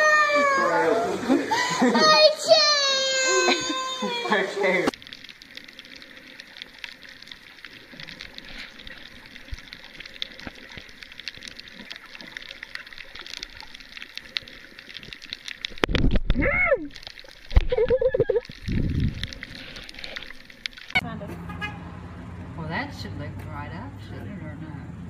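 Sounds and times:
faint underwater crackles and clicks: 0:02.8 - 0:21.0.

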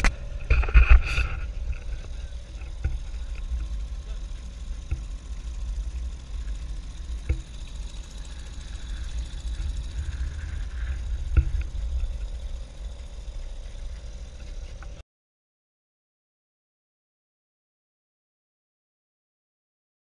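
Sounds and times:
outboard motor running: 0:00.0 - 0:15.0.

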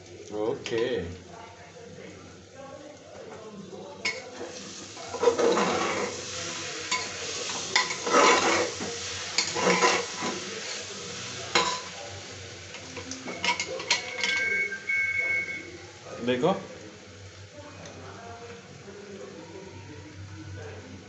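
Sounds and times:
food sizzling: 0:00.0 - 0:21.0
metal spoon scraping a pot: 0:05.1 - 0:06.2, 0:06.9 - 0:08.8, 0:09.4 - 0:10.4.

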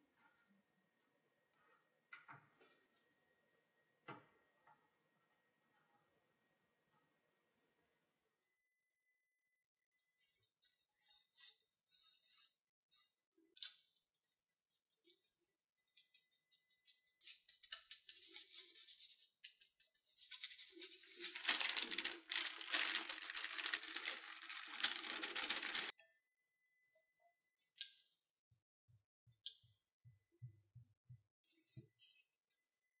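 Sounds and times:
crinkly rustling and crackling: 0:20.0 - 0:25.9.

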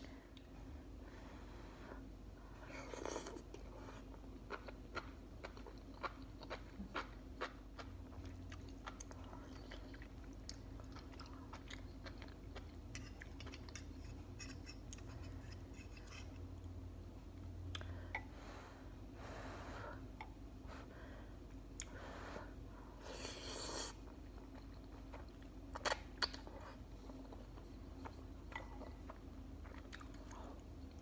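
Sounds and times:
steady low hum: 0:00.0 - 0:31.0
chewing noodles with mouth clicks: 0:02.9 - 0:14.0, 0:23.8 - 0:31.0.

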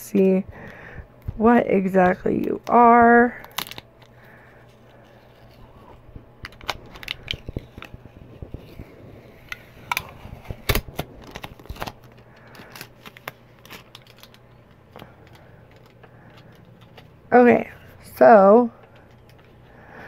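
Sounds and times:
package crackling and rustling: 0:02.4 - 0:17.3.

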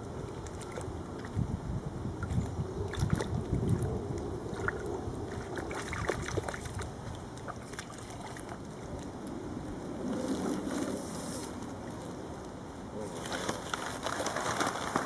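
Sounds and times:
water sloshing and splashing: 0:00.0 - 0:01.5, 0:02.2 - 0:09.3.

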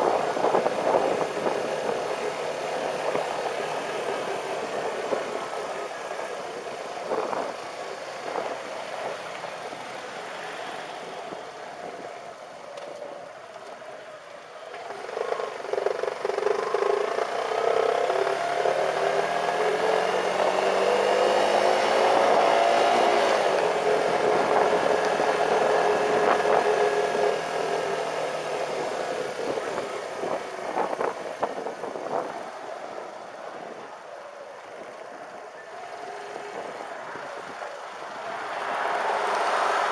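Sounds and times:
motorcycle engine accelerating: 0:14.7 - 0:33.9.

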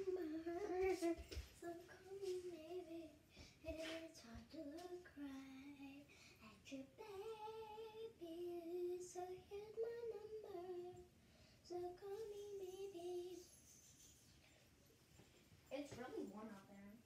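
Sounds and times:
child singing: 0:00.0 - 0:11.1, 0:11.7 - 0:13.6.

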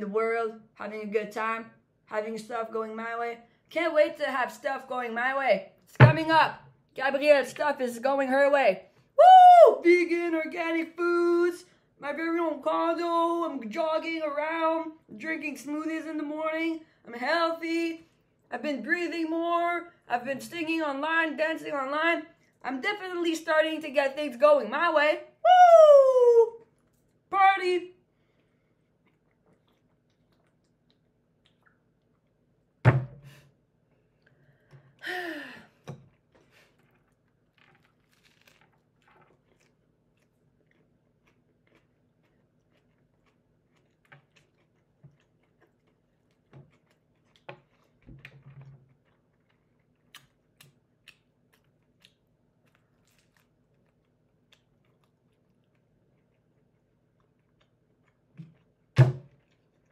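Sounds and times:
thunk on table: 0:06.0 - 0:06.4, 0:32.9 - 0:33.3, 0:59.0 - 0:59.3
chewing and crunching: 0:28.2 - 0:32.7, 0:36.1 - 0:59.9.

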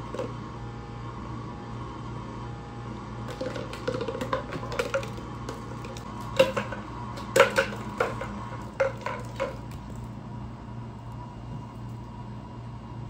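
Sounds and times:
plastic bottle knocking on tile: 0:03.3 - 0:09.8.

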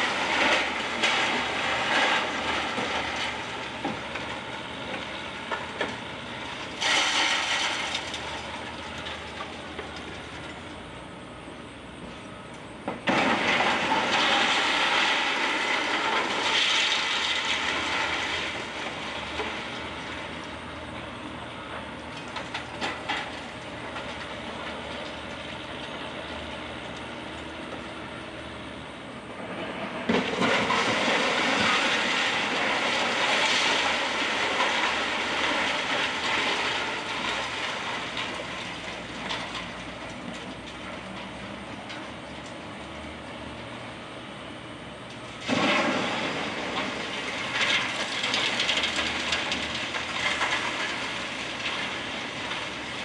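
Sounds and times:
rubble clattering down: 0:45.4 - 0:53.0.

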